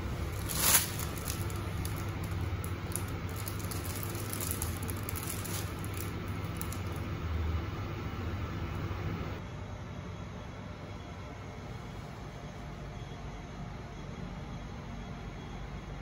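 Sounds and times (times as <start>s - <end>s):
plastic bag swishing and crinkling: 0.0s - 7.1s
steady low hum: 0.0s - 16.0s.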